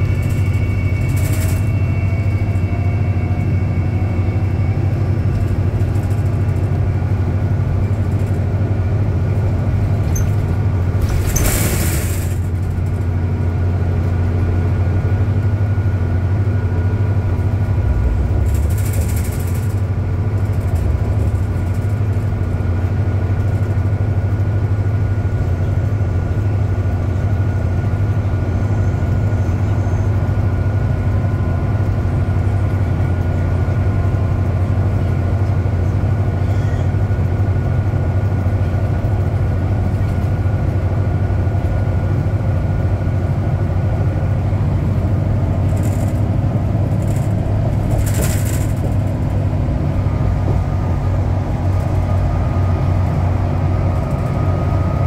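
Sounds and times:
bus drivetrain drone: 0:00.0 - 0:55.0
rattling burst: 0:17.6 - 0:22.6.

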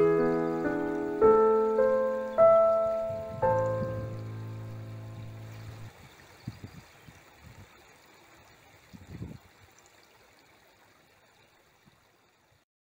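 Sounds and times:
faint hissing room tone: 0:00.0 - 0:05.9
soft low bumps: 0:00.0 - 0:06.0.

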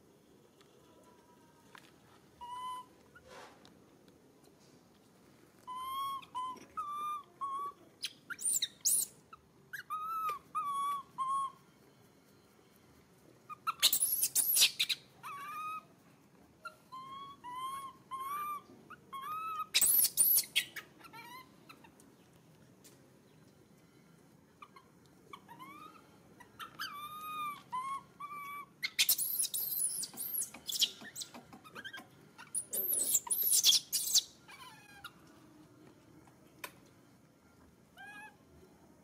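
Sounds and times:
baby monkey shrill screams: 0:02.4 - 0:02.9, 0:05.7 - 0:11.6, 0:13.5 - 0:15.9, 0:16.6 - 0:21.9, 0:24.6 - 0:35.2, 0:38.0 - 0:38.4
baby monkey cooing: 0:02.4 - 0:03.2, 0:05.6 - 0:11.6, 0:13.5 - 0:15.9, 0:16.6 - 0:22.0, 0:24.6 - 0:35.2, 0:38.0 - 0:38.4.

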